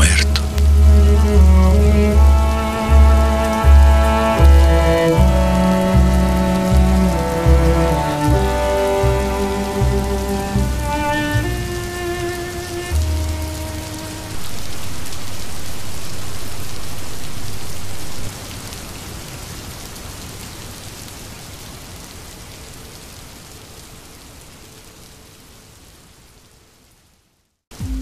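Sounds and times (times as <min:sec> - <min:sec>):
background music: 0:00.0 - 0:14.9
steady rain falling: 0:00.0 - 0:28.0.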